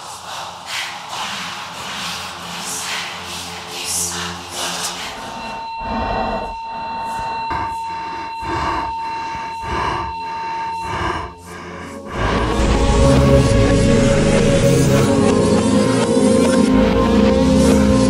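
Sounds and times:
high ringing tone: 5.4 - 11.8
person panting: 5.8 - 12.6.

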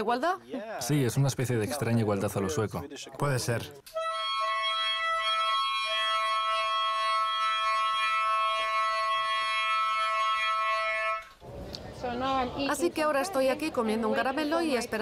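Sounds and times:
trumpet playing high held note: 4.0 - 11.4.

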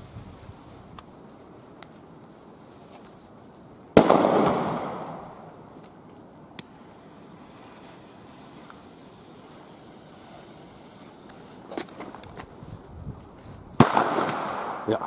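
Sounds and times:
firecracker bang: 4.0 - 5.5, 13.8 - 15.0.

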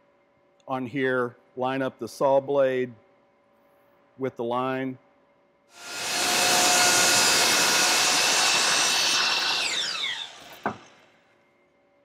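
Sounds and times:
miter saw cutting wood: 5.8 - 11.1
saw blade spinning down whine: 5.8 - 11.1.

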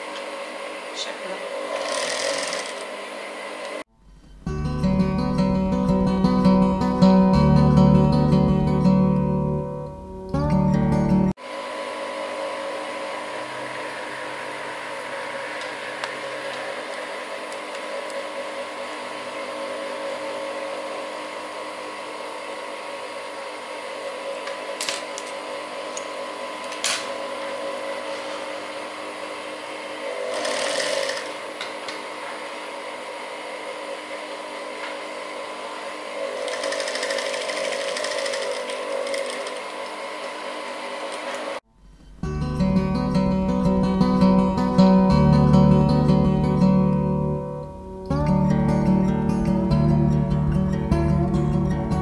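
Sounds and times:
sewing machine motor hum: 0.0 - 4.5, 11.6 - 42.2
sewing machine stitching: 1.7 - 2.9, 30.3 - 31.4, 36.4 - 39.7
sewing machine clicks: 36.4 - 39.7.

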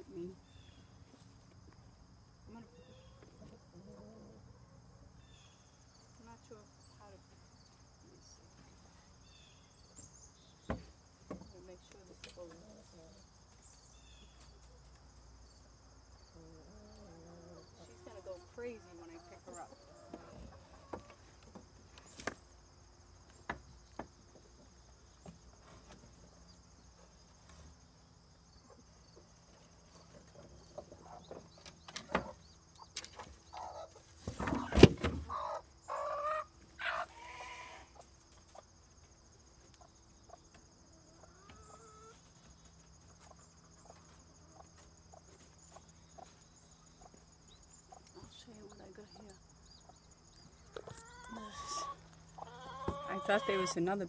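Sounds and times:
hen squawking and clucking: 34.6 - 38.0, 50.8 - 53.8.

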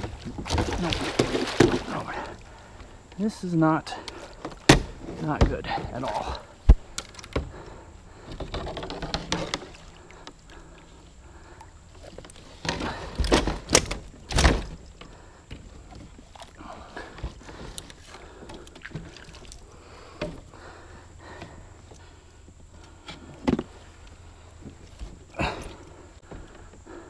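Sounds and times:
net knocking against canoe hull: 0.0 - 2.2
fish splashing water: 0.0 - 2.7, 16.1 - 20.0.

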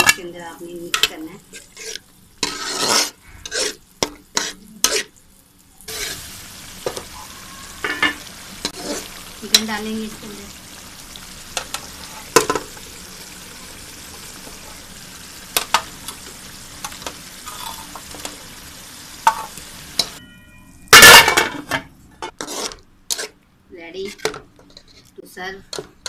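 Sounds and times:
gravy sizzling in a pan: 0.2 - 20.2.

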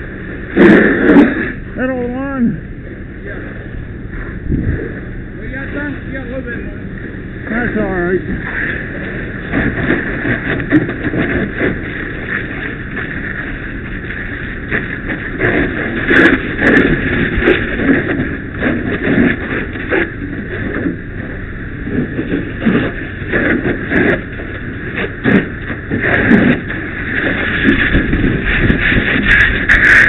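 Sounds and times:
fire crackling and popping: 0.0 - 30.0
fire roaring: 0.0 - 30.0.

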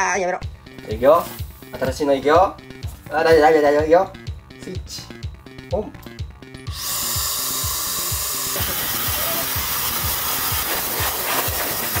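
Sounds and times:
background music with beat: 0.4 - 12.0
blow dryer blowing air: 6.7 - 12.0.

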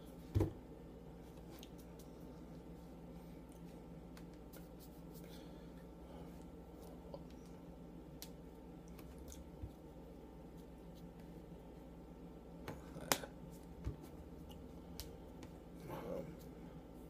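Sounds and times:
low room hum: 0.0 - 17.0
hands brushing against shirt: 3.6 - 5.4.

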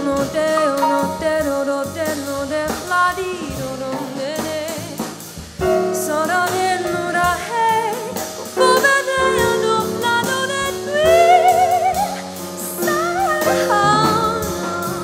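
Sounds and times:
person singing with vibrato: 0.0 - 4.9, 5.9 - 15.0
live band with drums: 0.0 - 15.0
singer breathing: 12.2 - 12.6.

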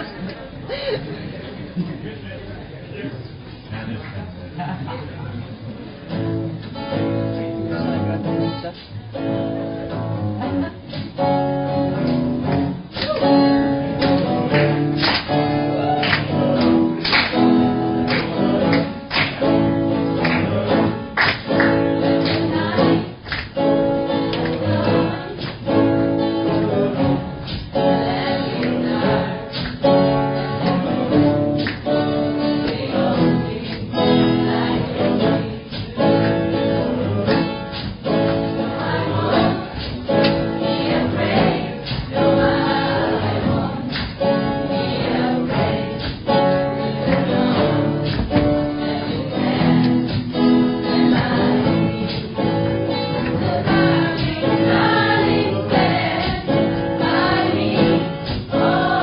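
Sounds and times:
strummed acoustic guitars: 5.8 - 59.0
group singing: 12.4 - 59.0.

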